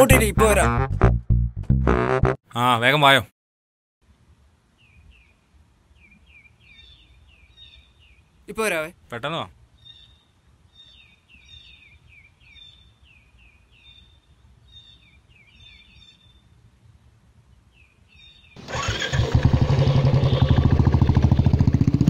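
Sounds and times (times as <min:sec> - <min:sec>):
birds chirping: 0:04.8 - 0:16.5
motorcycle engine running: 0:18.6 - 0:22.0.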